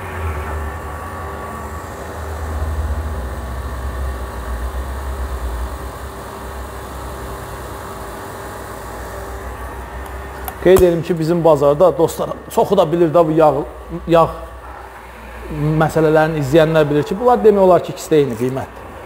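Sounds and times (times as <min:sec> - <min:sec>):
electric motor humming: 0:00.0 - 0:19.0.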